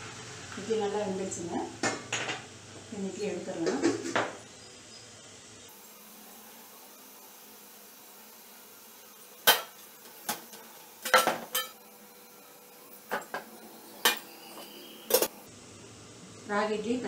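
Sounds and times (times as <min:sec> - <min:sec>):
metal steamer plates clanking: 0:11.0 - 0:11.8.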